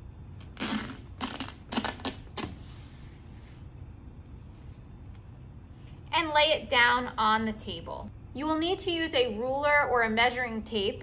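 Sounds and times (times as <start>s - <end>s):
tape being peeled off: 0.4s - 2.7s.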